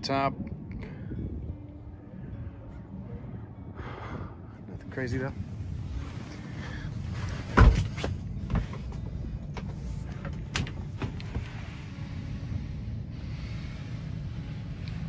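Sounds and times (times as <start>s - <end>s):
steady low rumble: 0.0s - 15.0s.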